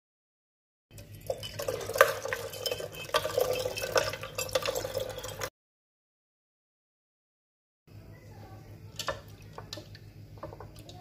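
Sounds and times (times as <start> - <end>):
water pouring into a kettle: 0.9 - 5.5.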